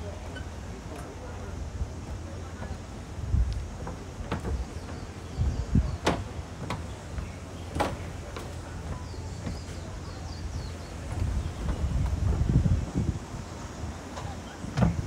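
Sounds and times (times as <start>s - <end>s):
low street rumble: 0.0s - 15.0s.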